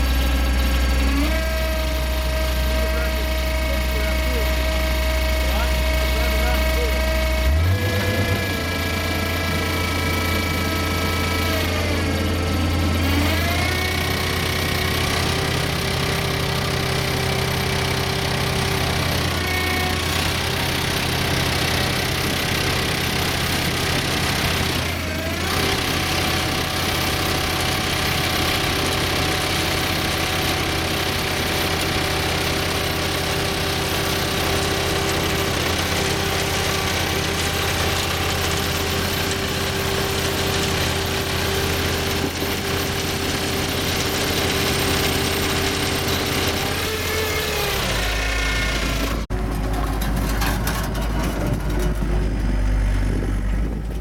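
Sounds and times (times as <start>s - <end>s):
bale slicer shredding: 0.0s - 54.0s
loader engine running: 0.0s - 54.0s.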